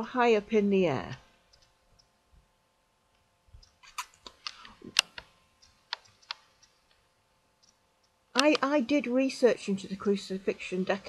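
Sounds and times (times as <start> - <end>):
sharp irregular clicks and taps: 1.5 - 2.5, 3.1 - 8.8.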